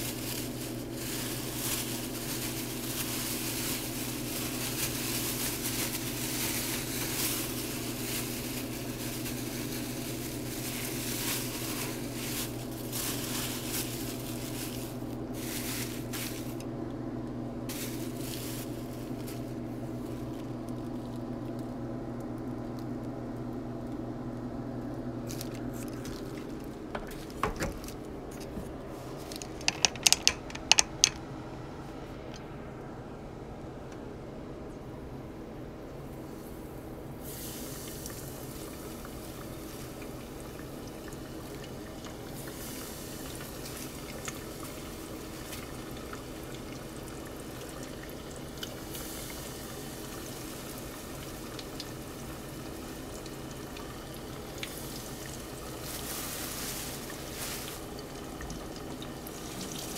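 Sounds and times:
crackling and rustling: 0.0s - 16.7s, 17.7s - 24.0s, 24.8s - 31.2s, 55.5s - 59.9s
steady low hum: 0.0s - 59.9s.

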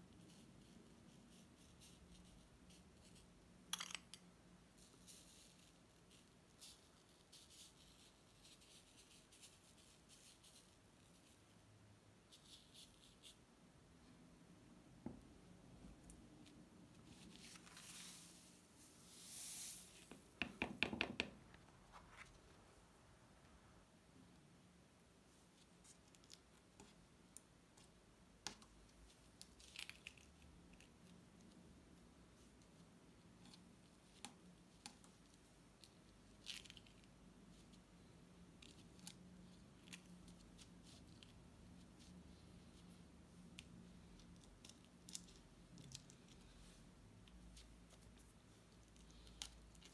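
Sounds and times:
sand hissing as it slides: 19.0s - 20.0s
card tapping: 20.1s - 21.4s.

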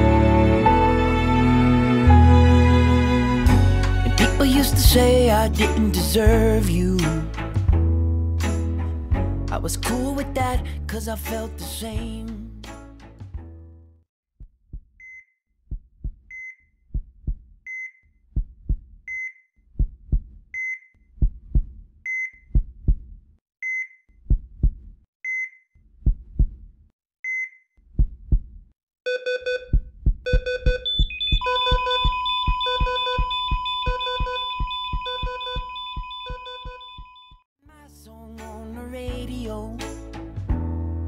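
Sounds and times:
heartbeat double thumps: 14.4s - 15.0s, 15.7s - 16.3s, 16.9s - 17.6s, 18.4s - 19.0s, 19.8s - 20.4s, 21.2s - 21.8s, 22.5s - 23.2s, 24.2s - 25.0s, 26.0s - 26.7s, 28.0s - 28.6s, 29.6s - 37.4s
heart monitor beeps: 16.3s - 16.6s, 17.7s - 18.0s, 19.1s - 19.4s, 20.6s - 20.9s, 22.1s - 22.5s, 23.6s - 24.0s, 25.3s - 25.6s, 27.3s - 27.6s, 29.1s - 37.4s
steady high flatline tone: 30.9s - 37.4s.

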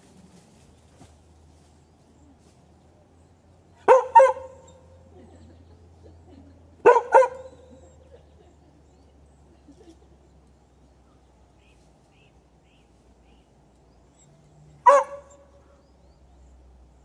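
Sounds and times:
dog barking: 3.8s - 4.9s, 6.8s - 7.8s, 14.8s - 15.5s.

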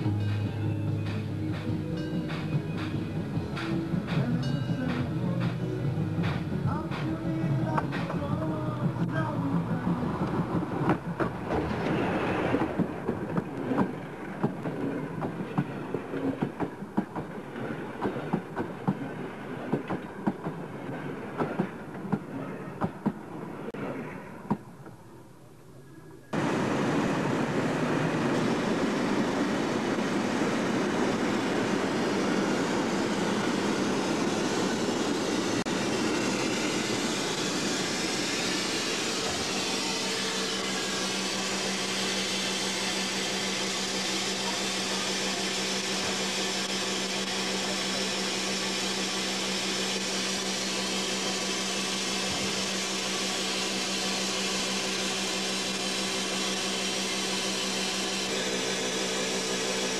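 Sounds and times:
steady hum: 25.9s - 59.9s
steam hissing: 26.4s - 59.9s.

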